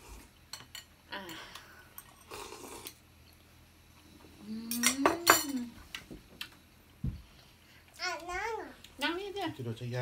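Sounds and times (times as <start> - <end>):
cutlery and dishes clinking: 4.7 - 5.7.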